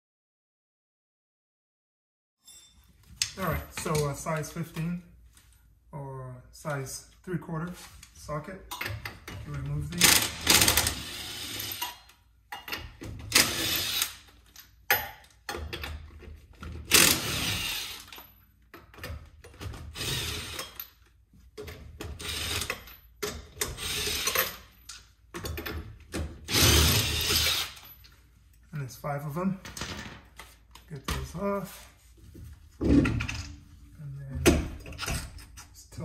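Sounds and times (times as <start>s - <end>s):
impact wrench bursts: 10.0s - 12.0s, 13.3s - 14.3s, 16.9s - 18.2s, 19.9s - 20.8s, 23.6s - 24.7s, 26.5s - 27.8s.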